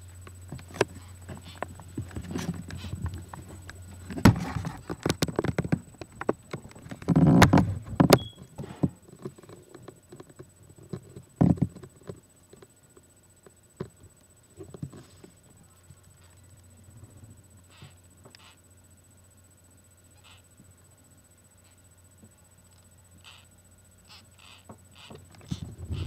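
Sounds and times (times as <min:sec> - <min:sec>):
knocks and bumps: 0:00.5 - 0:09.0.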